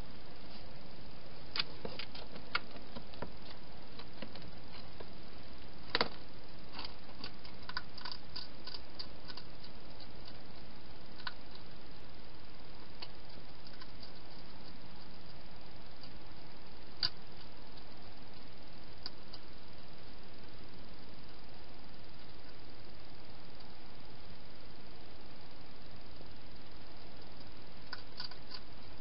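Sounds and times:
steady hiss: 0:00.0 - 0:29.0
hedgehog feeding clicks and crunches: 0:05.9 - 0:11.7, 0:12.9 - 0:15.4, 0:16.9 - 0:19.5, 0:27.0 - 0:28.9.

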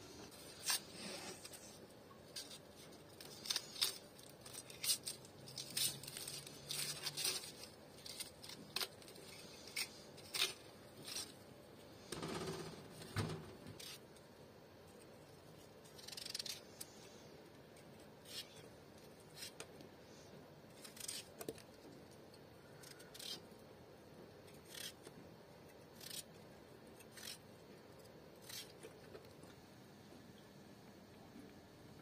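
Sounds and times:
knife cutting potato: 0:20.7 - 0:21.7, 0:22.8 - 0:23.5, 0:28.4 - 0:29.0.

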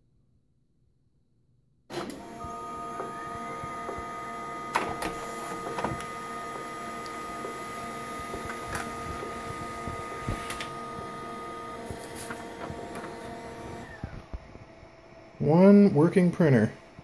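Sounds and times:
paper feed hum: 0:01.9 - 0:15.0
laser printer motor whine: 0:02.0 - 0:15.0.

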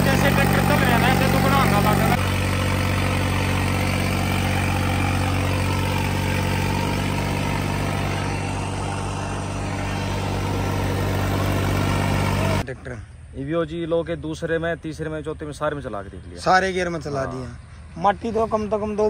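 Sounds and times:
tractor engine under load: 0:00.0 - 0:12.6
rotor churning soil: 0:00.0 - 0:12.7.

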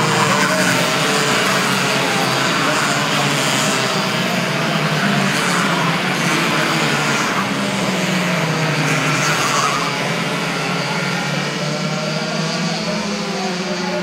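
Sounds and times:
kart engines buzzing: 0:00.0 - 0:14.0.

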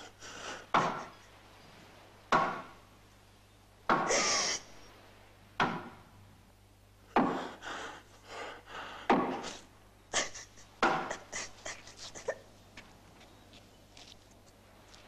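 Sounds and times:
man panting: 0:00.0 - 0:01.0, 0:07.1 - 0:12.4.

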